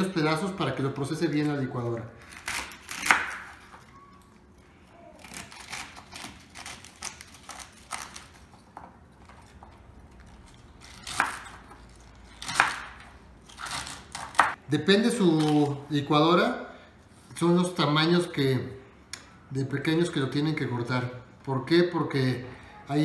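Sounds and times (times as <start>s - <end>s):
knife chopping celery on wood: 2.4s - 3.6s, 10.8s - 11.7s, 12.4s - 14.6s.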